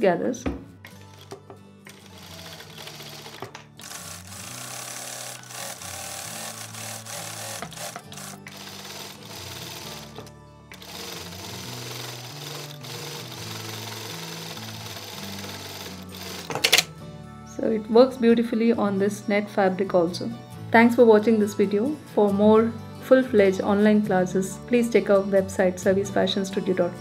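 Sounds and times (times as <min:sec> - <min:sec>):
sewing machine stitching: 0:00.9 - 0:16.9.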